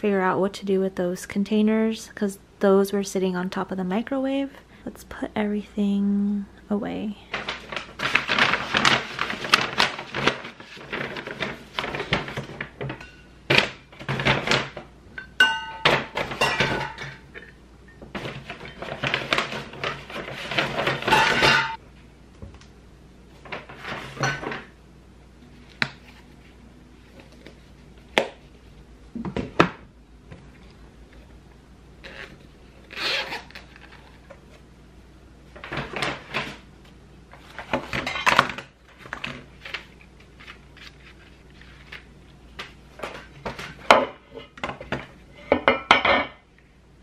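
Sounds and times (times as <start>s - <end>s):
paper bag rustling and crinkling: 7.3s - 14.8s, 18.1s - 21.4s, 37.3s - 43.9s
dishware clinking: 15.2s - 17.2s, 21.1s - 21.8s.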